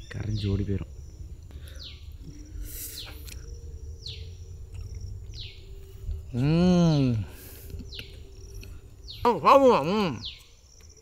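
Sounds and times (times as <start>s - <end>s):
man humming mmm: 6.3s - 7.8s.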